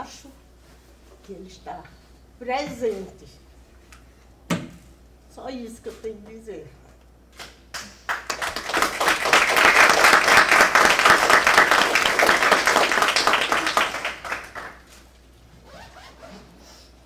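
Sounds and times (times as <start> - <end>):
audience applause: 8.1 - 14.8.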